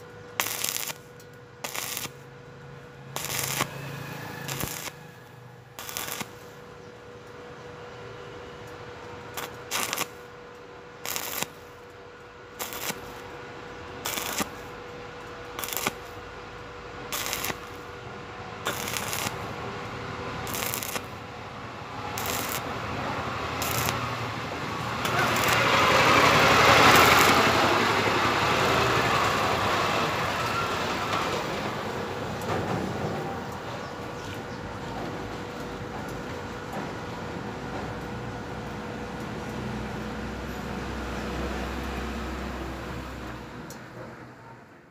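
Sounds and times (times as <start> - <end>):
welding arc crackling: 0.0 - 6.7, 8.6 - 30.8
welding arc sizzling: 0.0 - 7.3, 8.6 - 31.1
steady hiss: 14.1 - 14.8.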